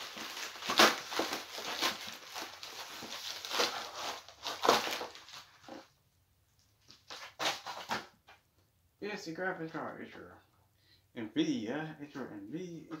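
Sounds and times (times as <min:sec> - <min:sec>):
plastic mailer rustling: 0:00.0 - 0:05.9.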